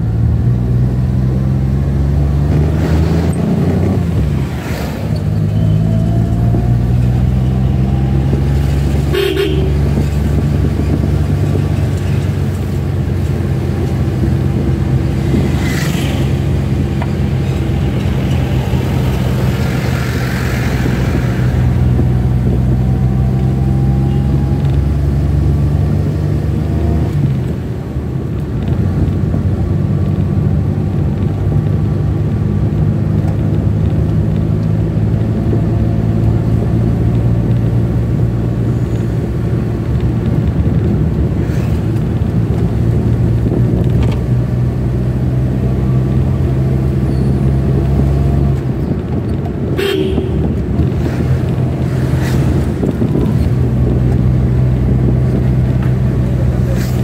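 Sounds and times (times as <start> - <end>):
horn toots: 9.0 - 10.0, 49.7 - 50.8.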